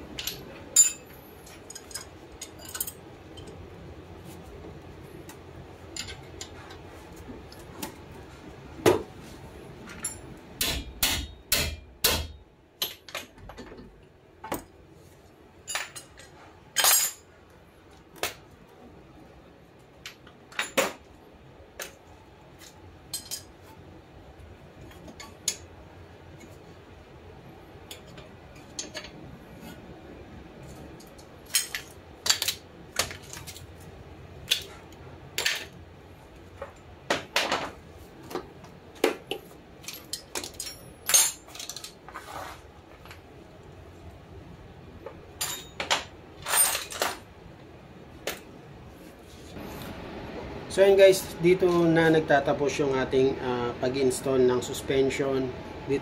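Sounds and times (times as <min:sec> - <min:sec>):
metal clinks and knocks: 0:00.1 - 0:03.7, 0:09.9 - 0:11.5, 0:15.6 - 0:17.3, 0:27.9 - 0:29.2, 0:39.1 - 0:42.0, 0:45.4 - 0:47.2.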